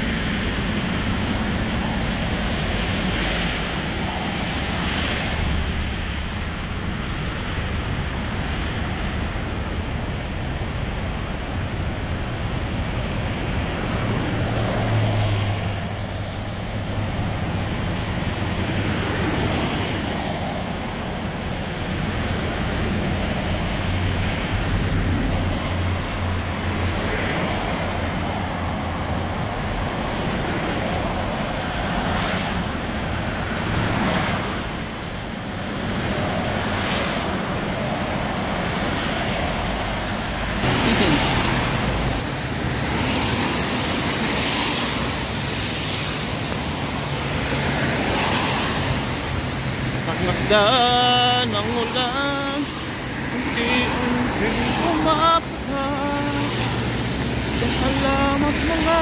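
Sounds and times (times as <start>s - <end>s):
low hum of vehicle engines: 0.0s - 59.0s
tyres hissing through water: 40.6s - 59.0s.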